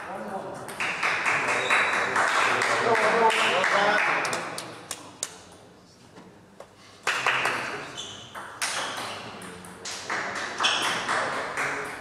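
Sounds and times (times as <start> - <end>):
table tennis ball hits: 0.6 - 3.2, 8.3 - 12.0.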